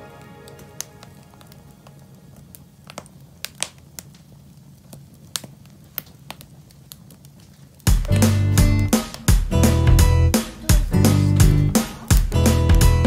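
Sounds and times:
wood fire crackling and popping: 0.0 - 13.0
acoustic guitar music: 7.9 - 13.0.

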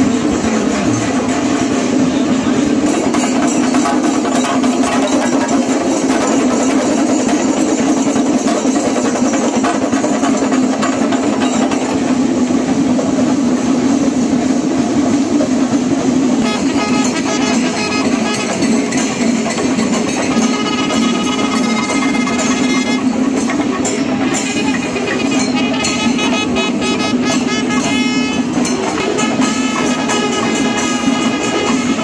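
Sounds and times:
festival drumming: 0.0 - 12.5, 16.1 - 32.0
cymbals clashing: 16.4 - 32.0
crowd noise: 17.5 - 32.0.

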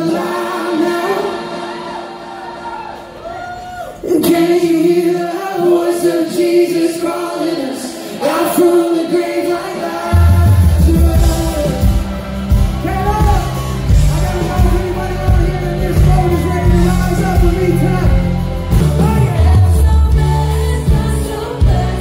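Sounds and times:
live band with singing: 0.0 - 22.0
drums and bass: 10.1 - 22.0.

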